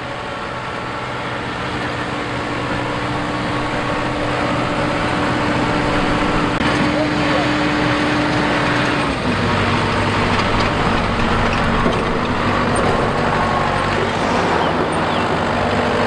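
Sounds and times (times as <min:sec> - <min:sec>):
combine harvester diesel engine: 0:00.0 - 0:16.0.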